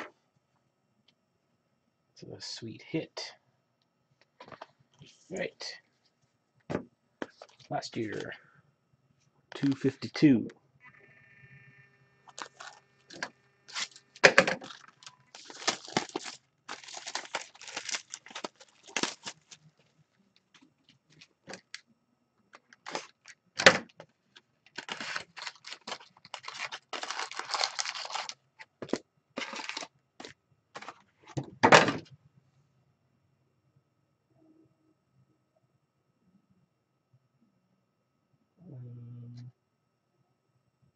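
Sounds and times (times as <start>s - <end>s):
card packs tearing: 9.6s - 9.9s, 12.3s - 19.6s, 22.8s - 23.9s, 24.7s - 31.0s.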